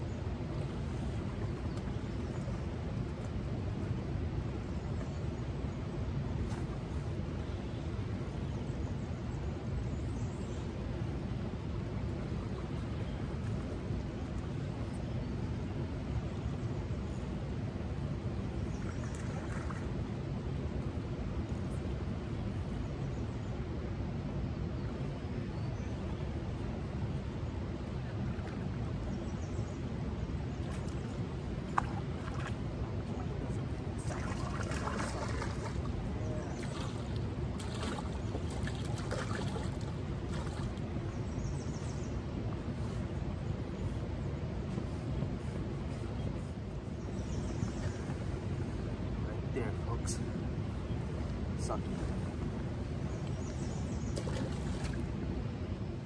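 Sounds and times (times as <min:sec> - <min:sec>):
river water flowing: 0:00.0 - 0:56.0
water trickling: 0:30.6 - 0:40.9
river current rushing: 0:30.9 - 0:41.0.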